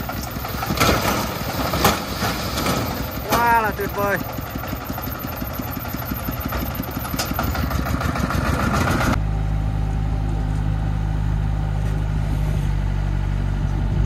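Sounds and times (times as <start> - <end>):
truck diesel engine rapid beat: 0.0 - 9.2
excavator diesel engine humming: 0.0 - 14.0.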